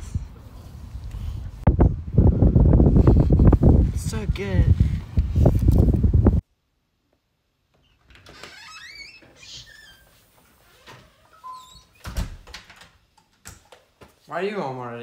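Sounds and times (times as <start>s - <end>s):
door hinges squeaking: 7.8s - 13.8s
door thumping shut: 12.0s - 12.8s.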